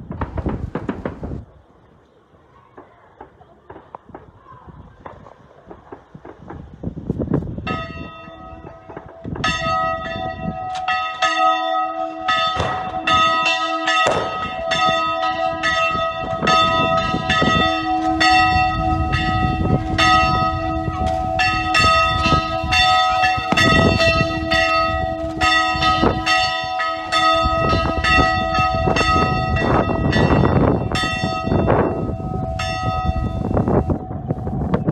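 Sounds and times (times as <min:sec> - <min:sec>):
church bells ringing: 0:07.6 - 0:34.9.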